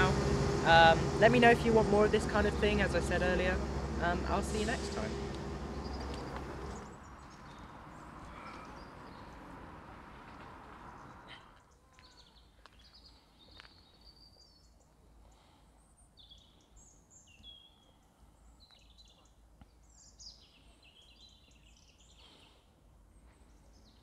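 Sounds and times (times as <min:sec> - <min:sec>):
low background rumble: 0:00.0 - 0:07.0
small birds chirping: 0:04.6 - 0:09.6, 0:10.8 - 0:24.0.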